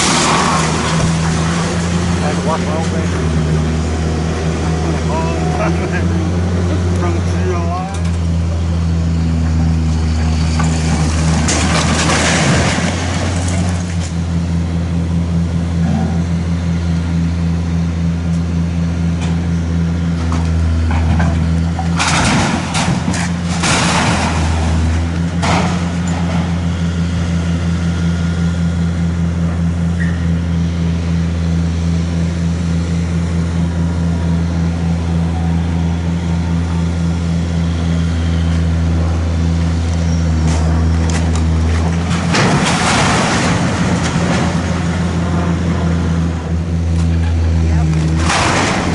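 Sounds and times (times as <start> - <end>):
masonry and debris crashing down: 0.0 - 2.8, 10.4 - 14.2, 21.0 - 26.6, 41.2 - 46.4, 47.8 - 48.9
excavator diesel engine running: 0.0 - 48.9.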